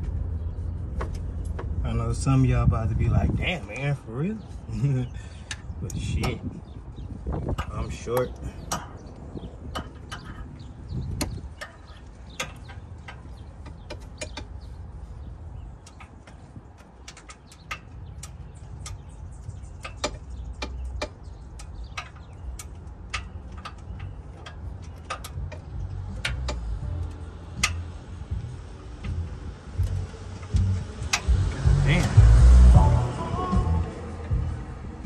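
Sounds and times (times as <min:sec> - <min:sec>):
hand tools clicking and tapping: 0:07.4 - 0:14.7, 0:15.8 - 0:32.2
low rumble: 0:24.0 - 0:35.0.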